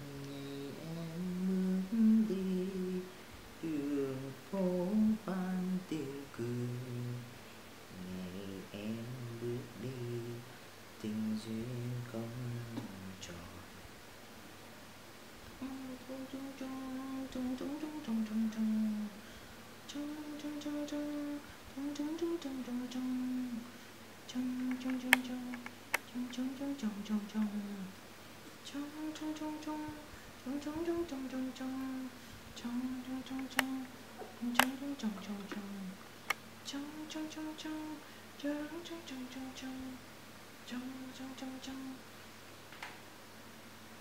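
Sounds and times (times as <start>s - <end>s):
man humming a lullaby: 0.0s - 7.3s, 7.9s - 13.7s, 15.6s - 19.2s, 19.9s - 23.7s, 24.3s - 27.9s, 28.6s - 36.0s, 36.6s - 40.0s, 40.6s - 42.0s
sharp clicks: 33.3s - 33.9s, 34.5s - 34.8s.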